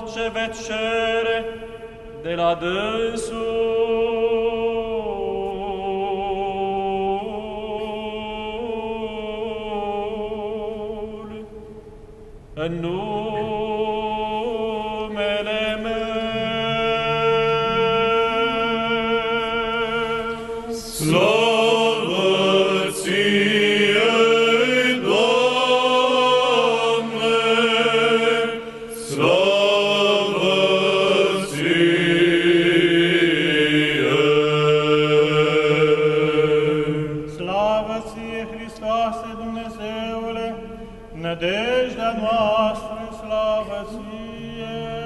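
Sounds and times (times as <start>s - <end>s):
male choir singing a chant: 12.8s - 40.5s, 41.2s - 45.0s.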